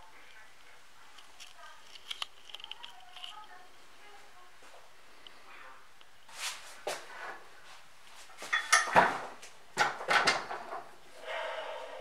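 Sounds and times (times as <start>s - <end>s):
metal machine clanking on workbench: 8.5s - 9.2s.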